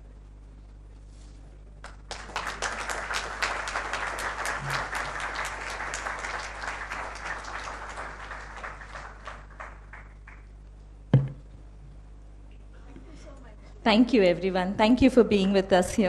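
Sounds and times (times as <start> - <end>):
audience applauding: 1.8 - 10.5.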